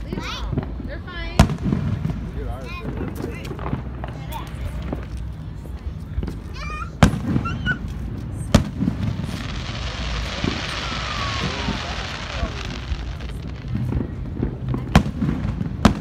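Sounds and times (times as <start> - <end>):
fireworks bangs: 0.1 - 5.2, 6.2 - 16.0
fireworks hiss: 7.0 - 16.0.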